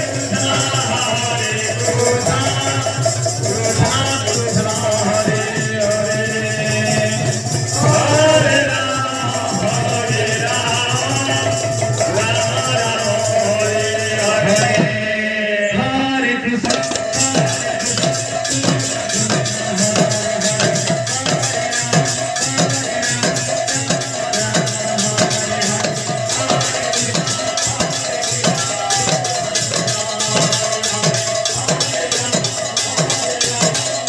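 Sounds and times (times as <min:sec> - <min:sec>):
drum beat: 0:00.0 - 0:15.0, 0:16.6 - 0:34.0
jingling hand cymbals: 0:00.0 - 0:15.1, 0:16.7 - 0:34.0
women singing a chant: 0:00.0 - 0:34.0.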